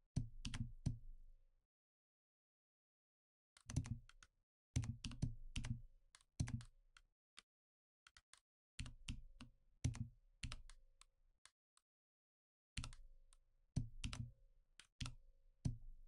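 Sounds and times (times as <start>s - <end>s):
computer keyboard keystrokes: 3.6s - 4.2s, 12.8s - 13.0s, 14.0s - 15.2s.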